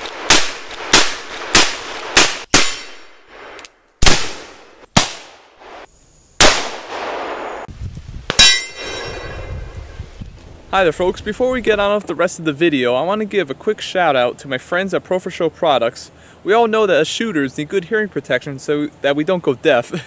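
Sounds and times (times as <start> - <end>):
steel plate target ringing: 2.5 - 3.1, 8.3 - 9.9.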